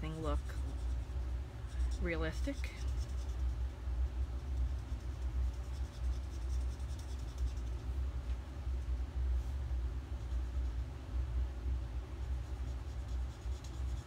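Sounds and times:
marker scratching on paper: 0.0s - 3.8s, 4.4s - 7.8s, 12.2s - 14.0s
furnace rumble: 0.0s - 14.0s.

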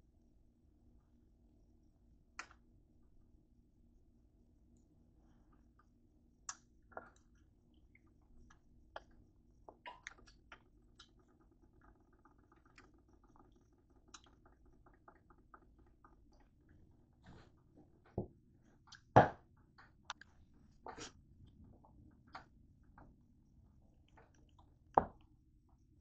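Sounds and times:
faint rapid ticks: 9.9s - 16.6s.

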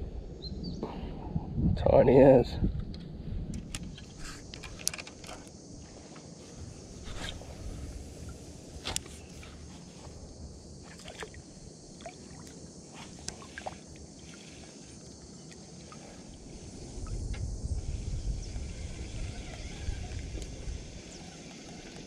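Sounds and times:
small clicks: 2.8s - 5.5s
water trickling: 10.6s - 17.2s.

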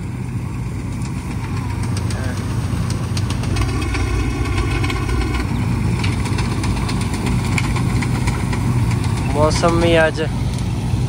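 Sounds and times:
combine harvester droning: 0.0s - 11.0s
high whine: 3.3s - 7.0s.

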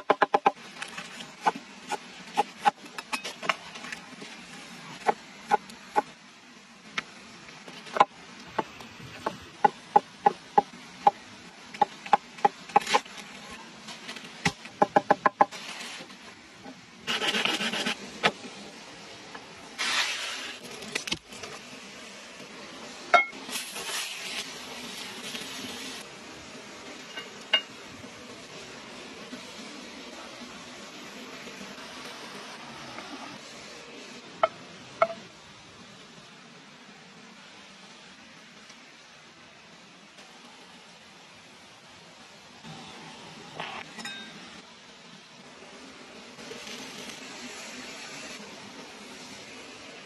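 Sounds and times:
food sizzling in hot pan: 19.7s - 20.8s, 21.5s - 35.2s, 46.4s - 50.0s.

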